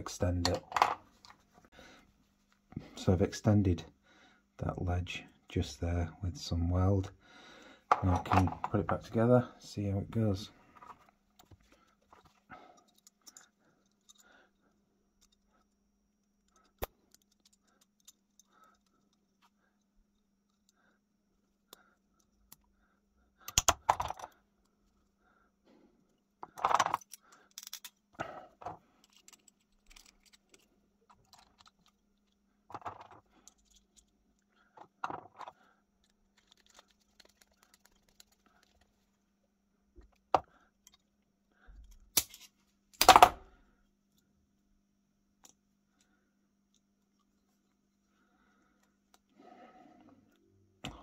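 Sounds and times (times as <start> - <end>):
metal lock parts clinking: 12.1 - 14.3, 16.4 - 19.4, 26.4 - 38.9.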